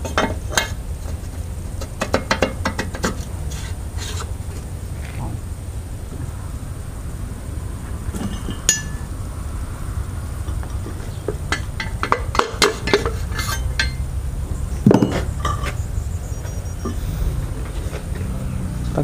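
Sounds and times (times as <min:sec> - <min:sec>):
metal engine parts clinking: 0:00.0 - 0:04.7, 0:08.1 - 0:09.1, 0:10.4 - 0:18.5
steady low hum: 0:00.0 - 0:19.0.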